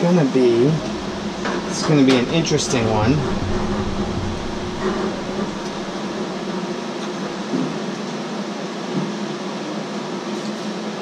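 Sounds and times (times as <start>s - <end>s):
cooling fans whirring: 0.0s - 9.5s
low hum: 0.4s - 7.7s.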